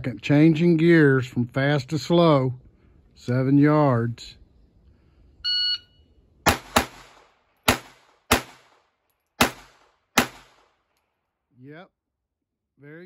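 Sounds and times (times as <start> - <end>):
pistol shots: 6.4 - 10.8.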